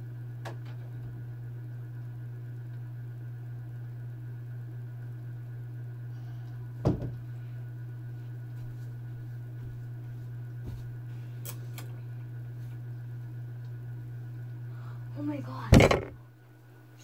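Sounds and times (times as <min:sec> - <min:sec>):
dull knock: 0:06.8 - 0:07.2.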